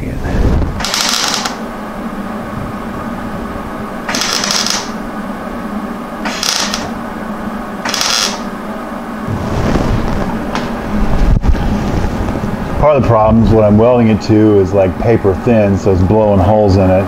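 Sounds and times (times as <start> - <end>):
welder low hum: 0.0 - 17.0
welding arc bursts: 0.8 - 1.7, 4.0 - 5.1, 6.2 - 7.1, 7.8 - 8.5.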